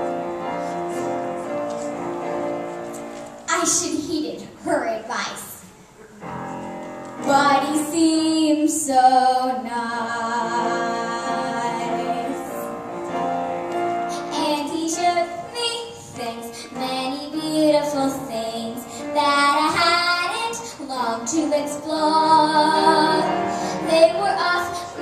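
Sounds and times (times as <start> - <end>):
piano accompaniment: 0.0 - 4.5, 6.0 - 25.0
girl singing: 7.2 - 12.7, 14.1 - 25.0.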